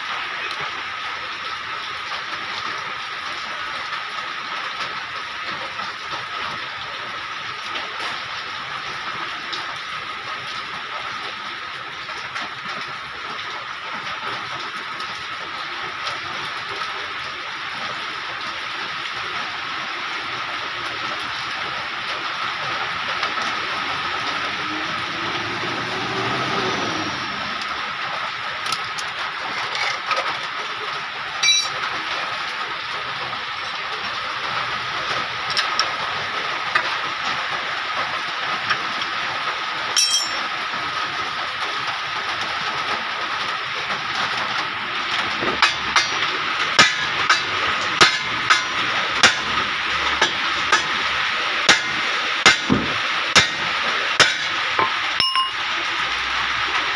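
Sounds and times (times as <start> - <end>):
hand tools clinking on metal: 31.4 - 31.8, 40.0 - 40.5, 45.6 - 49.5, 54.8 - 55.7.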